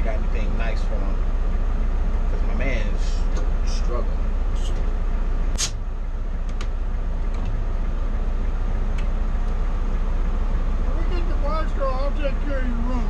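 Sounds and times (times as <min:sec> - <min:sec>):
diesel engine rumbling: 0:00.0 - 0:13.0
sharp click: 0:05.5 - 0:05.8.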